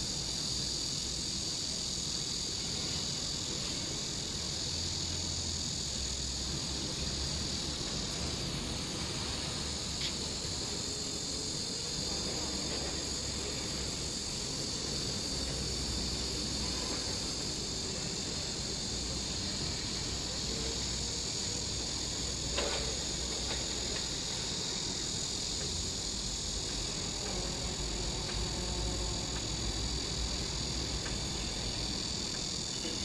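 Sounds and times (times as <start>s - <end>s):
hydraulic power unit humming: 0.0s - 33.0s.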